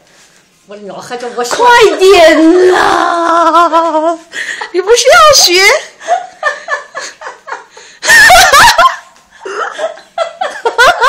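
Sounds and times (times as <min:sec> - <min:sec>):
people laughing: 0:06.0 - 0:11.0.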